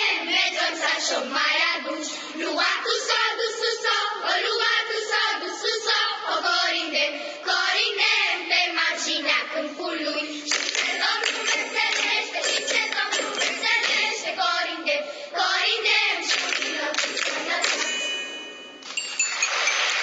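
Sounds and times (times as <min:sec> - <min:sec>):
children's choir singing: 0:00.0 - 0:18.8
rhythmic hand-clapping: 0:10.2 - 0:14.7, 0:15.5 - 0:20.0
audience applause: 0:19.1 - 0:20.0.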